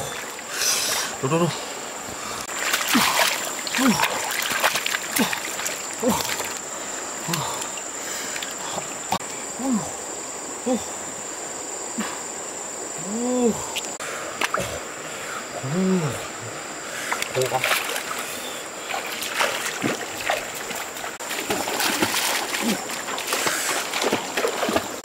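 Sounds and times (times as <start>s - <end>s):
water splashing and sloshing: 0.0s - 9.4s, 13.6s - 15.3s, 16.5s - 25.0s
high insect drone: 0.0s - 25.0s.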